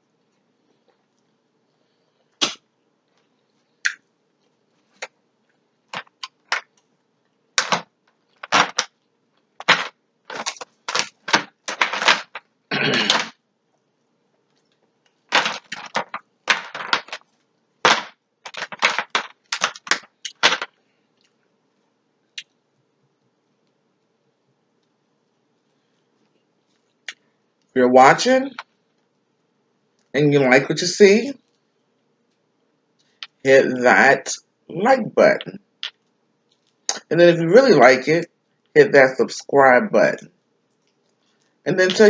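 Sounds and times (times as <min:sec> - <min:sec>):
crab shells cracking: 0:07.6 - 0:12.5, 0:14.6 - 0:21.3
shell crunching: 0:07.6 - 0:12.5, 0:14.5 - 0:21.4.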